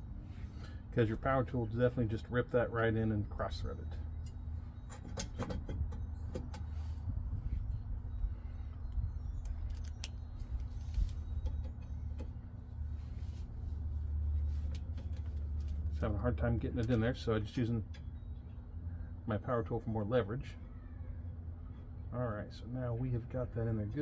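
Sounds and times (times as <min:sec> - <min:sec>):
steady low hum: 0:00.0 - 0:24.0
small metal clicks and clinks: 0:08.7 - 0:12.4.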